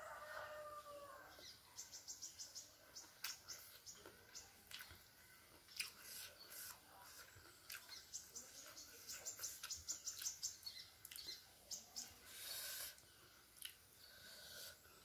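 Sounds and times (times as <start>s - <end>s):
faint rooster crow: 0.0s - 1.9s
small birds chirping: 0.5s - 15.0s.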